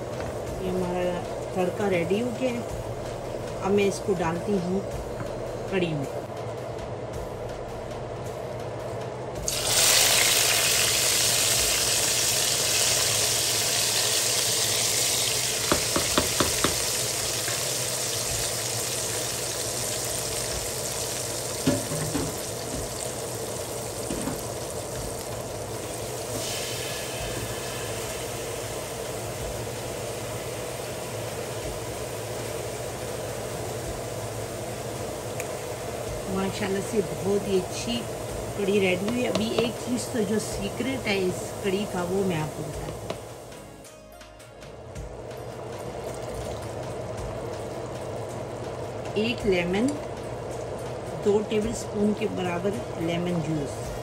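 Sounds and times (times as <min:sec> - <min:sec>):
hot oil sizzling: 0:09.4 - 0:43.8.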